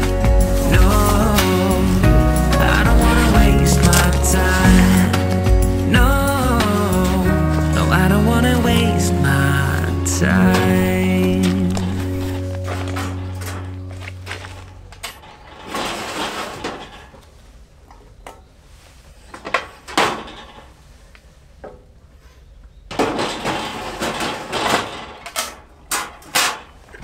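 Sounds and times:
background music: 0:00.0 - 0:15.1
hard objects knocking and clattering: 0:02.0 - 0:06.8.

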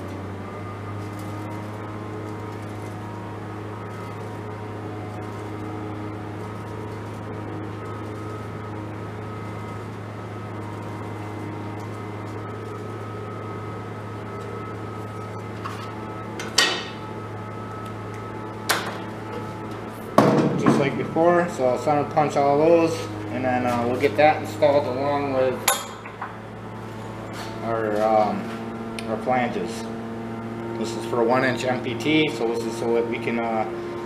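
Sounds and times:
machine hum: 0:00.0 - 0:34.0.

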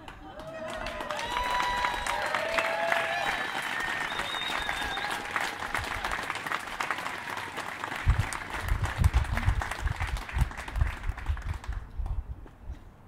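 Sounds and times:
crowd applauding: 0:00.0 - 0:11.8.

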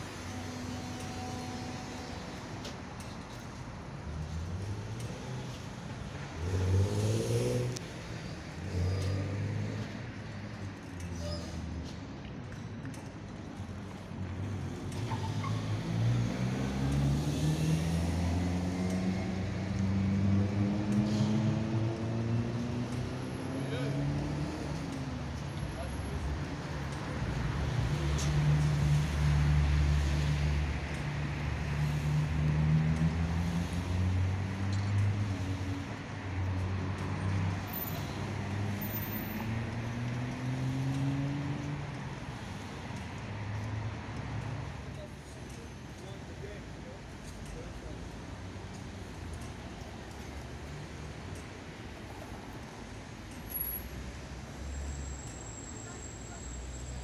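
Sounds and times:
tram motors humming: 0:00.0 - 0:03.3
traffic hum: 0:00.0 - 0:57.0.

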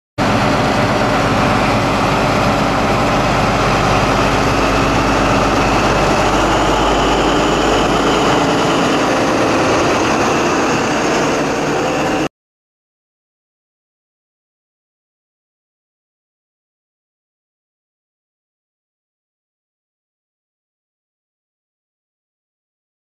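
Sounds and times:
diesel engine running: 0:00.2 - 0:12.3.

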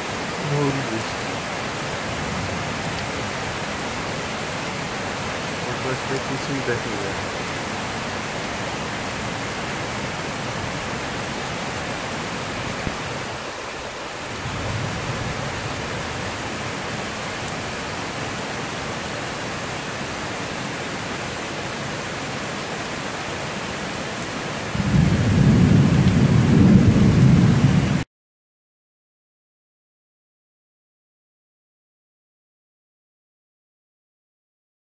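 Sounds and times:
heavy rain falling: 0:00.0 - 0:28.0.

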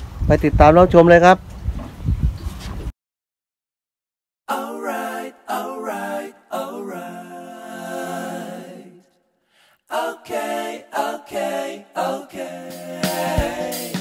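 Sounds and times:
person singing: 0:04.5 - 0:09.0, 0:09.9 - 0:14.0.

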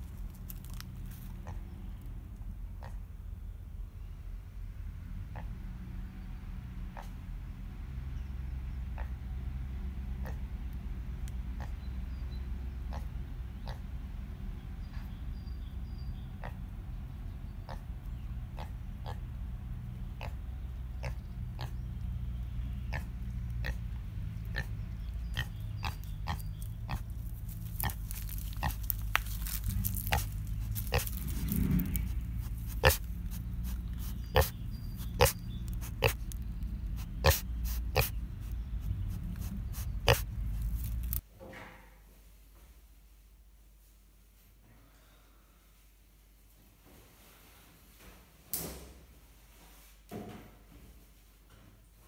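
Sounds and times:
steady low rumble: 0:00.0 - 0:41.2
pig grunting: 0:01.4 - 0:01.8, 0:02.8 - 0:03.1, 0:05.2 - 0:05.7, 0:06.9 - 0:07.2, 0:08.9 - 0:09.3, 0:10.1 - 0:10.7, 0:11.5 - 0:12.0, 0:12.8 - 0:13.9, 0:16.2 - 0:16.8, 0:17.6 - 0:22.0, 0:22.8 - 0:41.2
pig snuffling: 0:17.7 - 0:41.2
sharp clicks and crackles: 0:26.6 - 0:33.1, 0:40.1 - 0:41.2.

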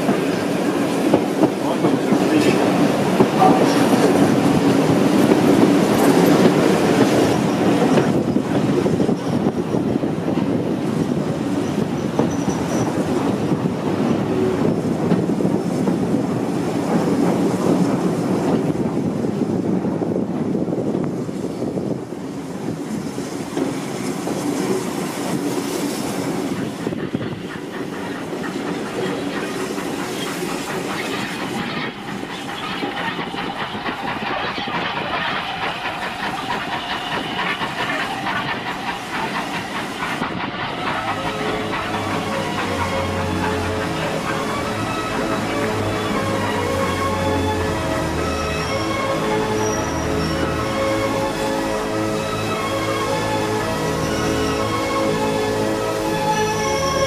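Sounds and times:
train wheels clattering on rails: 0:00.0 - 0:57.0
high wheel squeal: 0:11.7 - 0:13.0, 0:26.5 - 0:57.0.

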